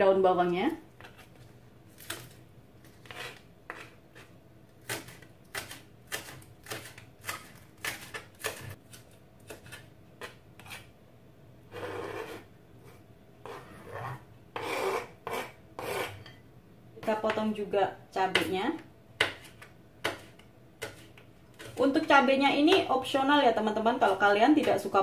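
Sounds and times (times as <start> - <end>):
knife scraping a cutting board: 1.0 - 10.9, 11.7 - 16.4, 19.2 - 22.1
knife chopping on plastic board: 3.0 - 10.9, 18.3 - 18.5, 19.2 - 21.8.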